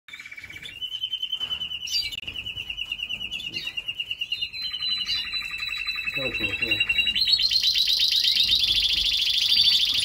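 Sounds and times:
canary trilling: 0.1s - 10.0s.

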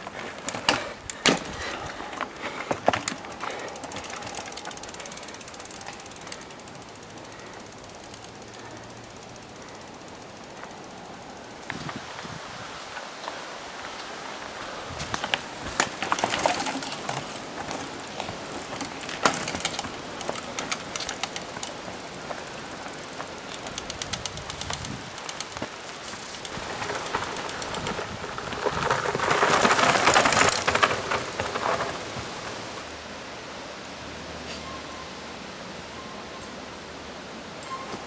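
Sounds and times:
bikes clicking and rattling: 0.0s - 33.1s
tyres crunching over dirt and leaves: 11.7s - 32.9s.

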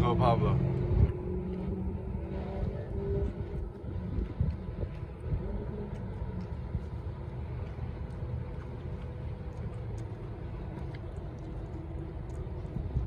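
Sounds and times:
wind on microphone: 0.0s - 8.1s, 12.0s - 13.0s
traffic noise: 0.0s - 13.0s.

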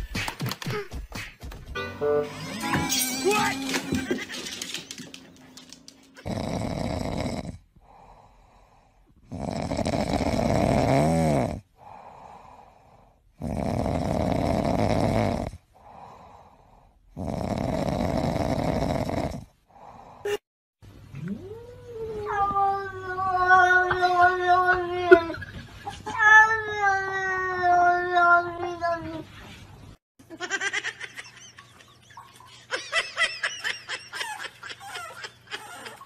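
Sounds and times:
cat snoring: 6.2s - 15.6s, 17.1s - 19.5s.

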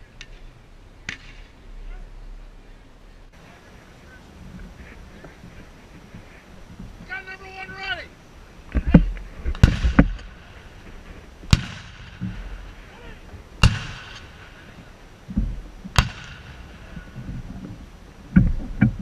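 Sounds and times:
cannons firing: 9.5s - 10.6s, 11.5s - 12.9s, 13.6s - 14.7s, 15.9s - 17.0s.

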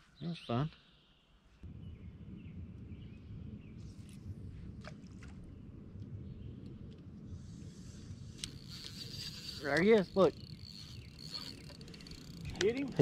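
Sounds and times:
low rumble on open water: 1.6s - 13.0s
faint clicks: 8.4s - 12.9s.

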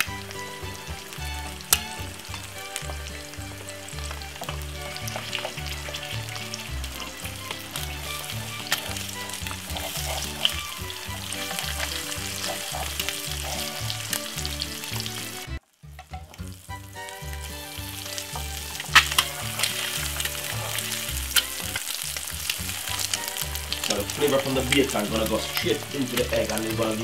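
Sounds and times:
eggs sizzling in a frying pan: 0.0s - 27.0s
spatula scraping a pan: 2.8s - 14.6s, 18.3s - 22.1s.

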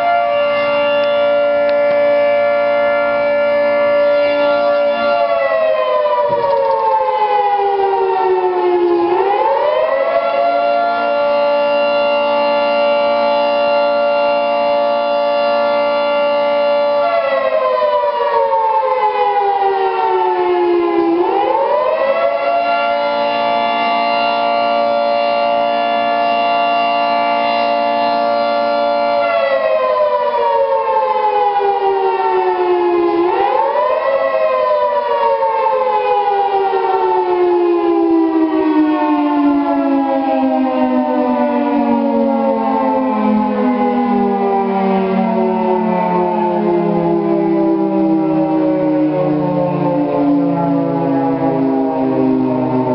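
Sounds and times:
siren wailing: 0.0s - 52.9s.

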